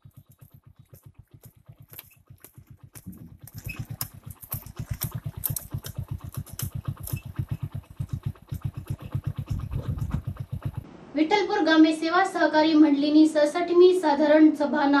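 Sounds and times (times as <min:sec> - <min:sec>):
small cart engine thudding: 0:00.0 - 0:10.9.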